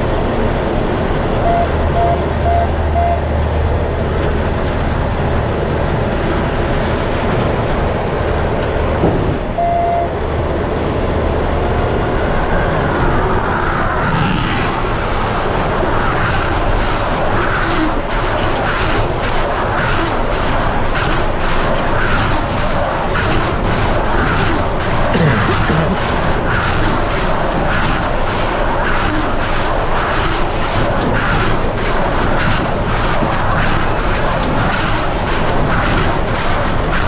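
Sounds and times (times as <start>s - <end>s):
electronic beeps: 1.4s - 3.2s, 9.6s - 10.1s.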